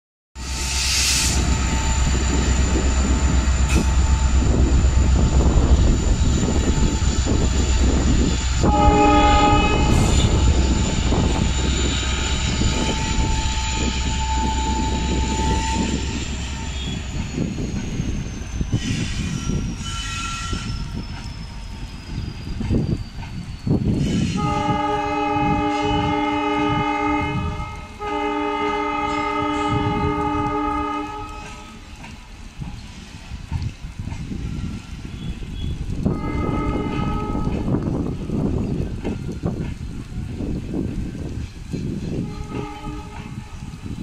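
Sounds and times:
train wheels rumbling on rails: 0.4s - 44.0s
train horn: 6.6s - 17.2s, 19.0s - 21.0s, 24.0s - 32.0s, 35.2s - 38.4s, 42.2s - 44.0s.

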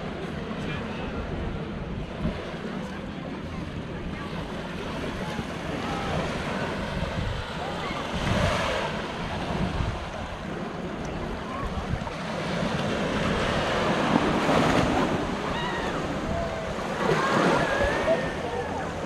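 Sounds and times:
sea waves washing onto beach: 0.0s - 19.0s
wind rumbling on microphone: 0.0s - 19.0s.

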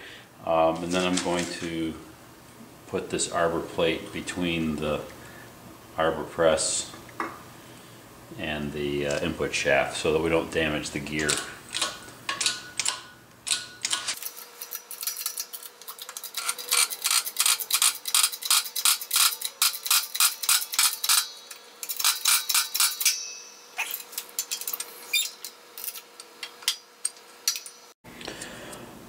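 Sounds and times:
hydraulic jack metallic clicks: 11.3s - 27.8s.

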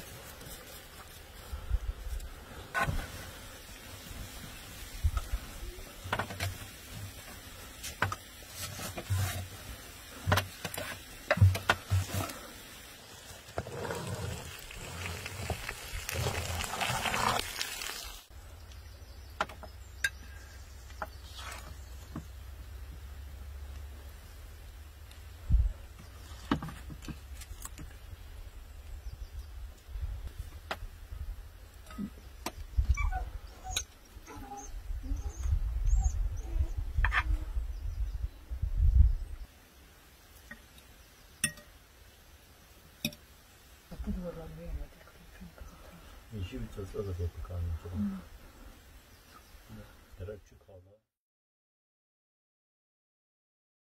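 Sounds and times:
wind rumble on microphone: 25.4s - 25.9s, 34.3s - 39.5s.

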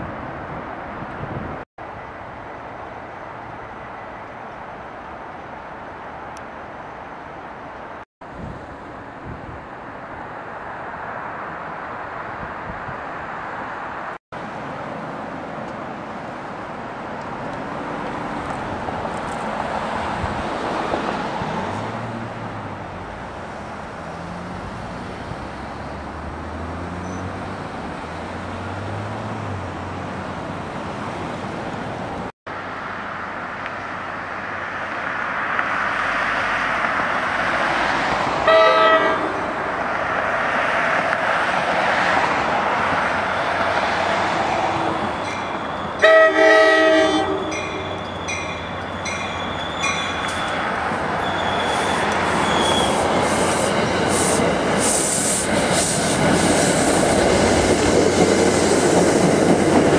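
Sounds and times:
diesel locomotive engines: 29.3s - 59.9s
train rumble: 34.4s - 59.9s
train horn blast: 38.4s - 39.7s, 45.9s - 48.1s.

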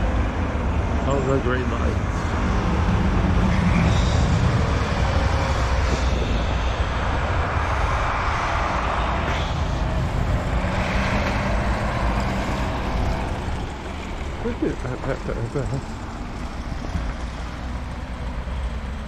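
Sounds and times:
diesel truck engine rumbling: 0.0s - 19.0s
pickup truck passing: 2.0s - 19.0s
plow blades scraping snow: 3.4s - 17.6s.

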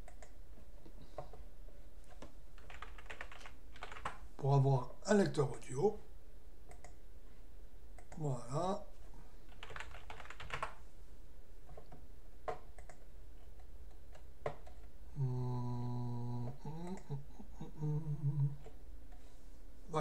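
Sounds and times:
keyboard keystrokes: 2.6s - 4.2s, 9.5s - 10.8s
man humming: 15.1s - 18.8s.

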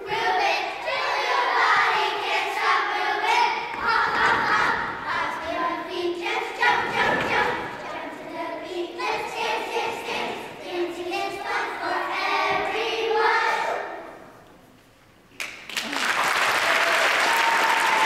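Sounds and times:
children's choir singing: 0.0s - 14.4s
audience applause: 15.7s - 18.0s.

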